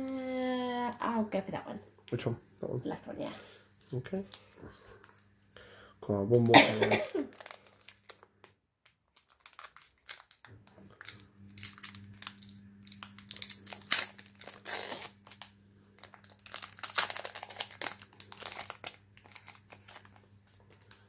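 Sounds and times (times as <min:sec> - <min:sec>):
foil pack crinkling: 0:06.3 - 0:21.0.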